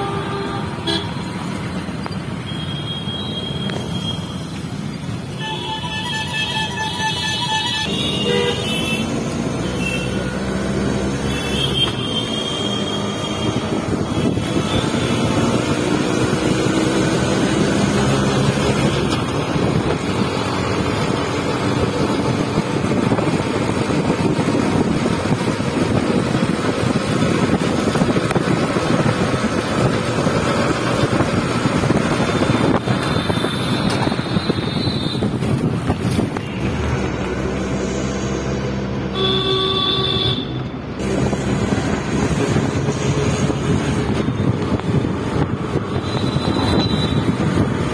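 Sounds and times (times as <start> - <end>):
vehicle engine and road noise: 0.0 - 47.9
wind buffeting microphone: 13.4 - 37.8, 41.0 - 47.9
horn beeping: 39.1 - 40.7.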